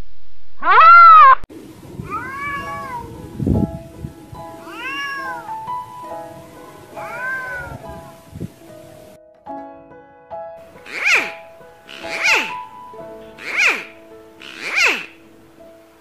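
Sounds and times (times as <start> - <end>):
cat meowing: 0.6 - 1.4, 2.0 - 3.3, 4.6 - 5.7, 6.8 - 8.1, 10.9 - 12.6, 13.3 - 15.2
soft background music: 2.6 - 16.0.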